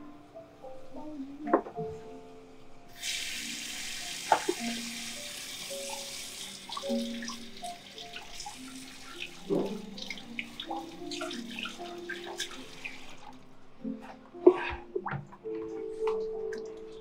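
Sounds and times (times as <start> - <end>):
tap water running into basin: 2.9 - 13.5
water drips: 3.0 - 13.5, 14.4 - 17.0.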